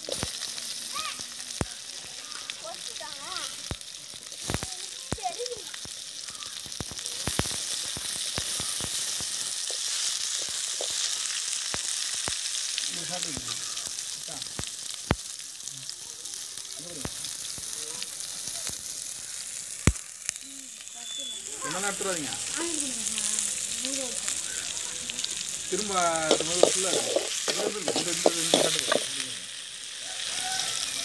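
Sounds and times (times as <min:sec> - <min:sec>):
onions sizzling in a pan: 0:00.0 - 0:31.0
metal spoon scraping a pan: 0:26.2 - 0:29.2.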